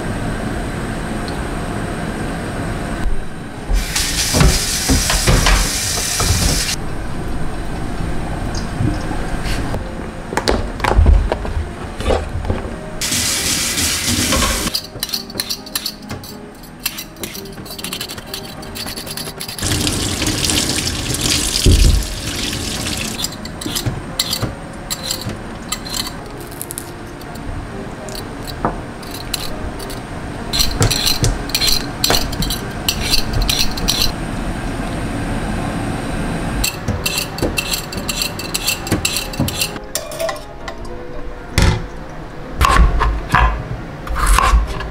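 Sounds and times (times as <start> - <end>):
water running into sink: 3.8 - 6.8, 13.0 - 14.7, 19.6 - 23.4
vegetable peeler scraping: 16.8 - 19.7.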